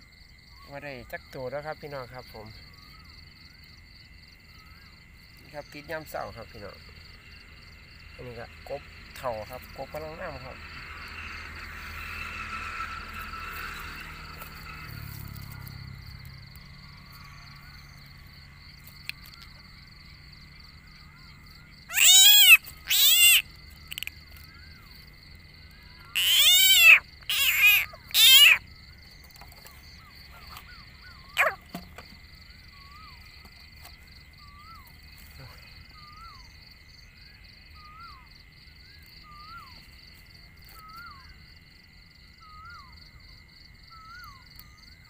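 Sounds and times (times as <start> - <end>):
frog croaking loudly: 21.7 - 24.5, 25.8 - 28.7, 31.3 - 31.8.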